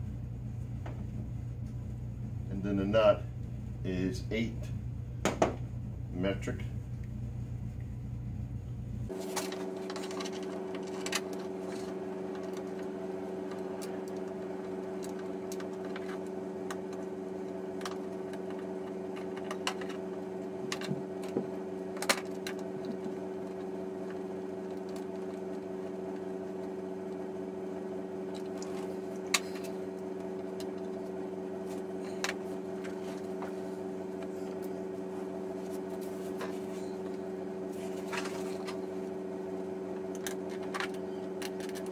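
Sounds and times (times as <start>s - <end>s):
steady hum: 0.0s - 41.9s.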